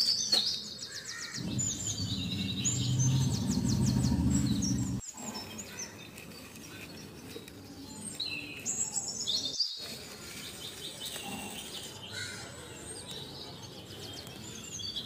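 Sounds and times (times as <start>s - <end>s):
small birds chirping and trilling: 0.0s - 15.0s
low rumbling noise: 1.4s - 5.0s.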